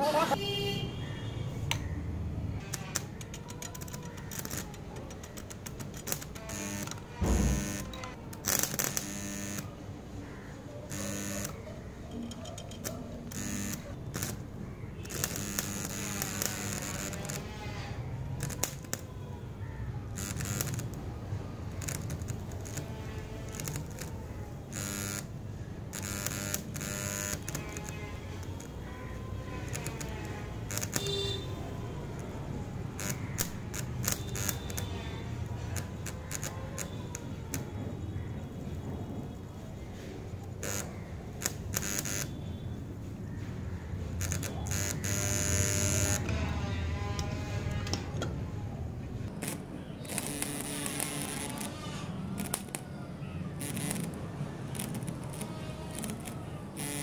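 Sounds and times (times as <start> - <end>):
electrical hum: 0.0 - 57.0
welding arc buzzing and crackling: 2.6 - 9.8, 10.9 - 11.6, 12.8 - 19.1, 20.1 - 28.9, 29.6 - 37.7, 40.5 - 42.4, 44.1 - 46.3, 49.2 - 52.8, 53.5 - 57.0
welder low buzz: 6.5 - 8.1, 8.8 - 9.7, 10.9 - 11.6, 13.3 - 14.4, 49.4 - 51.8, 54.8 - 57.0.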